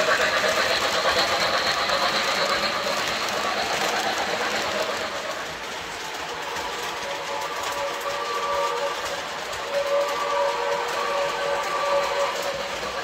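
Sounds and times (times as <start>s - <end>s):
model train running: 0.0s - 13.0s
model train steam whistle: 6.3s - 13.0s.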